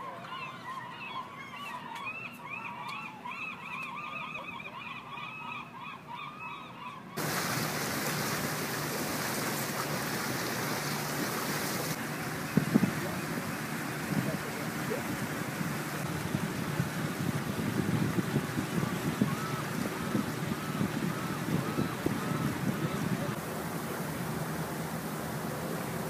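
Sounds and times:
birds calling: 0:00.0 - 0:24.7
wind: 0:00.0 - 0:26.0
boat motor: 0:07.2 - 0:26.0
water rushing: 0:07.2 - 0:26.0.

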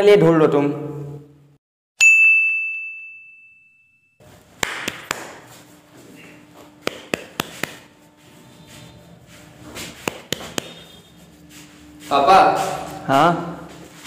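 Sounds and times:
bright bell-like ding: 0:02.0 - 0:04.2
sharp clicks and taps: 0:06.8 - 0:07.8, 0:10.0 - 0:10.8.

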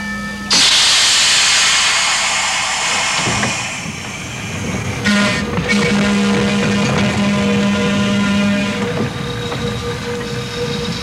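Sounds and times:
loud hiss of released air: 0:00.5 - 0:05.2
trolley car air whistle: 0:00.5 - 0:11.0.

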